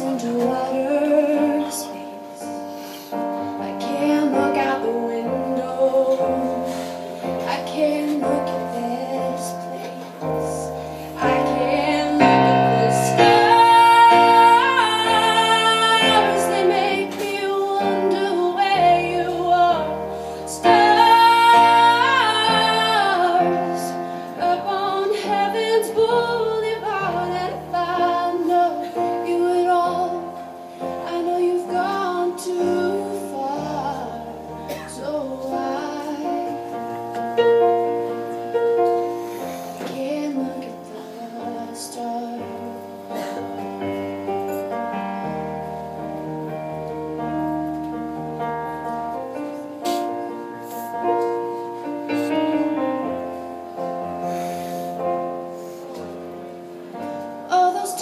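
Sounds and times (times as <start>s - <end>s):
woman singing: 0.0s - 2.7s, 3.5s - 36.9s, 39.8s - 43.3s, 57.4s - 58.0s
electric keyboard piano chords: 0.0s - 58.0s.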